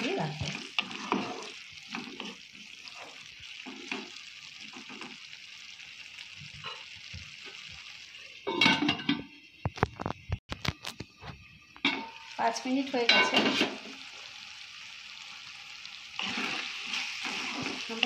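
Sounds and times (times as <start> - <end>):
spatula scraping wok: 0.0 - 5.3, 11.9 - 14.1, 16.0 - 18.0
vegetables sizzling in a wok: 0.0 - 10.3, 11.0 - 18.0.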